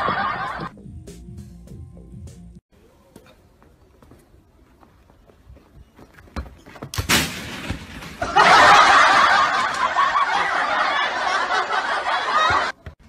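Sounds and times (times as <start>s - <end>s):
loud laughter: 0.0s - 0.7s, 8.2s - 12.8s.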